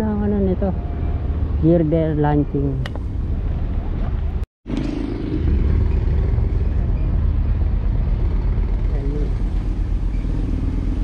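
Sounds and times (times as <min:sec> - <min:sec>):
road noise: 0:00.0 - 0:11.0
small vehicle engine running: 0:04.7 - 0:11.0.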